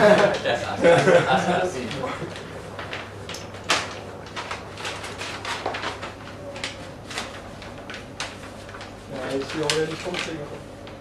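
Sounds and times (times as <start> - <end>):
wrapping paper crinkling: 2.2 - 11.0.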